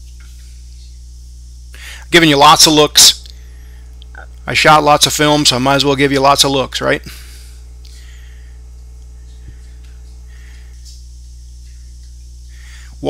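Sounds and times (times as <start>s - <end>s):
welder electrical hum: 0.0s - 13.0s
welding arc hiss: 0.0s - 13.0s.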